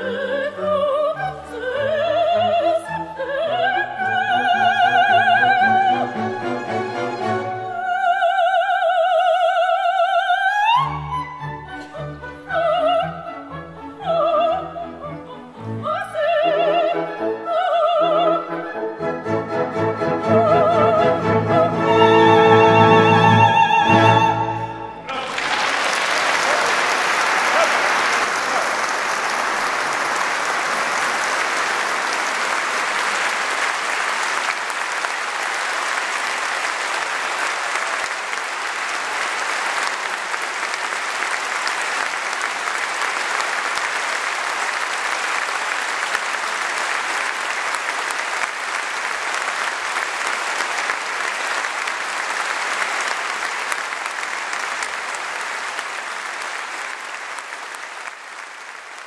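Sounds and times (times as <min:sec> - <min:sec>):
audience applauding: 0:01.7 - 0:10.8, 0:25.0 - 0:59.0.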